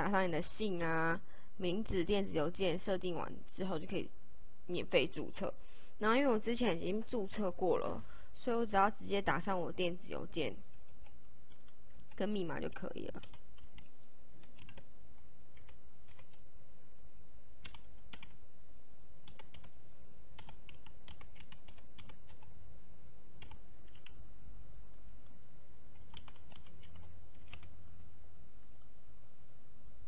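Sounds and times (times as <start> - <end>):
steady low hum: 0.0 - 30.0
typing on computer keyboard: 13.2 - 14.9, 15.5 - 16.4, 17.6 - 18.4, 19.2 - 19.7, 20.4 - 22.5, 23.4 - 24.2, 26.0 - 27.7.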